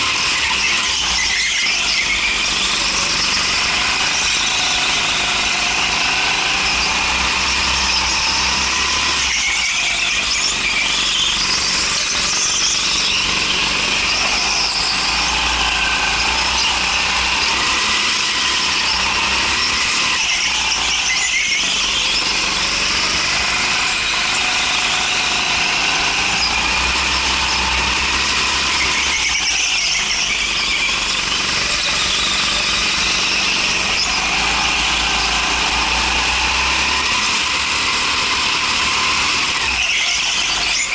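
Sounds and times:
go-kart engine running: 0:00.0 - 0:40.9
high squeal: 0:00.0 - 0:40.9.

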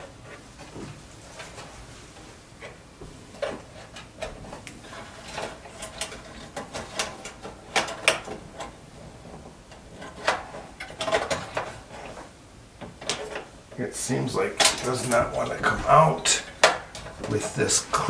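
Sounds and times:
fingers clicking and scraping metal shield: 0:02.5 - 0:13.6.

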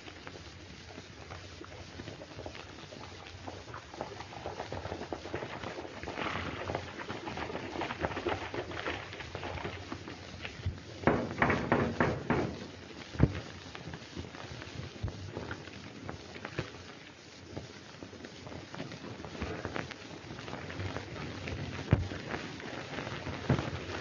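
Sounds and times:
old film soundtrack hiss: 0:00.0 - 0:24.0
sharp loud knocks: 0:11.1 - 0:12.6.

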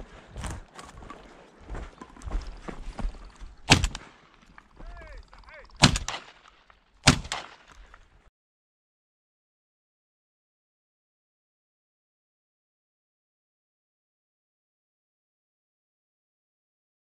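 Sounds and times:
shotgun shots: 0:03.6 - 0:04.1, 0:05.8 - 0:07.8.

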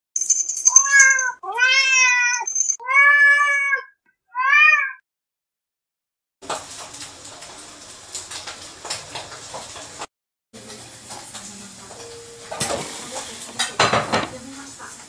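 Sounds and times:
cat meowing: 0:00.8 - 0:05.0.

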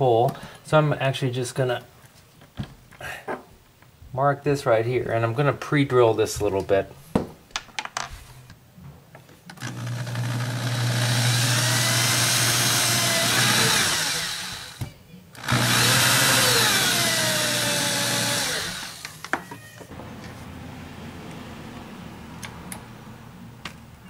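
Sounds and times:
cordless drill drilling into wood: 0:09.6 - 0:14.8, 0:15.4 - 0:19.3.

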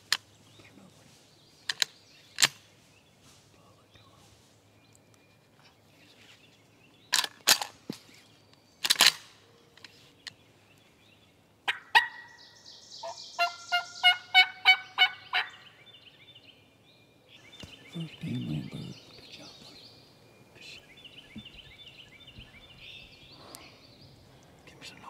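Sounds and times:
wild turkey clucking: 0:11.6 - 0:12.4, 0:13.0 - 0:15.8
wild turkey calls: 0:11.6 - 0:16.3.

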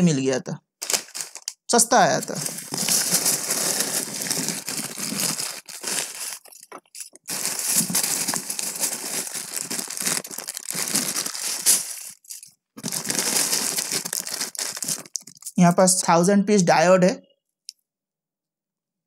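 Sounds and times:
plastic bags crinkling: 0:00.8 - 0:15.6.

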